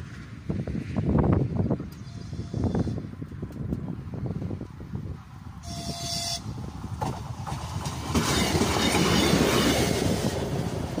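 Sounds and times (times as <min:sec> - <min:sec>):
railcar engine and wheels passing: 0:00.0 - 0:11.0
train horn blast: 0:05.6 - 0:06.6.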